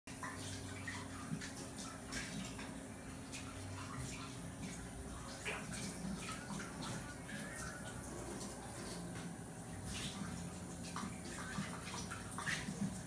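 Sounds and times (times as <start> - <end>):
faint distant voices: 5.1 - 9.0.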